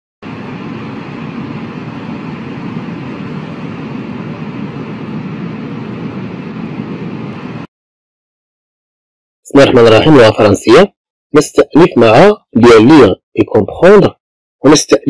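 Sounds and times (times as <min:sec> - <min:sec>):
rushing rumbling noise: 0:00.2 - 0:07.7.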